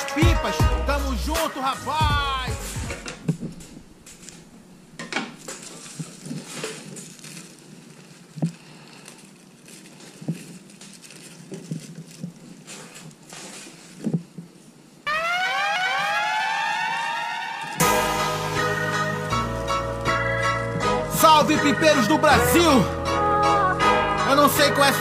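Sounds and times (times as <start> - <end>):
plastic rustling: 3.1 - 14.9.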